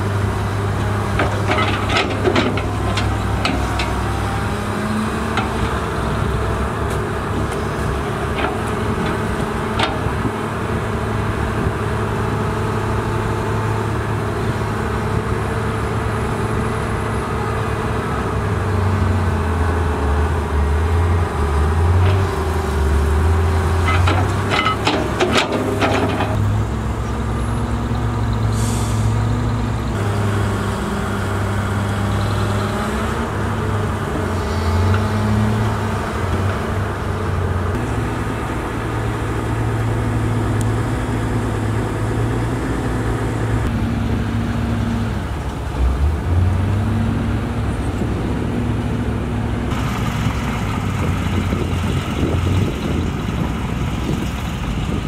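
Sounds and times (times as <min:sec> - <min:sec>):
dump truck engine: 0:00.0 - 0:55.0
excavator diesel engine: 0:00.0 - 0:55.0.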